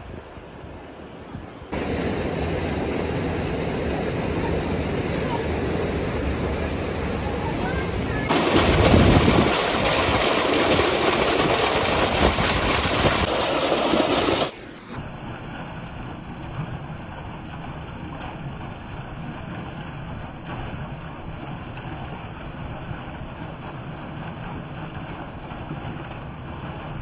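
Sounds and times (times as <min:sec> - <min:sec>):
water pouring into a pond: 0:07.4 - 0:27.0.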